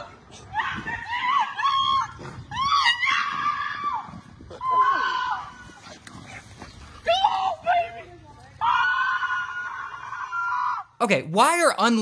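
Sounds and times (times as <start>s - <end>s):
woman screaming in panic: 0.5s - 5.6s.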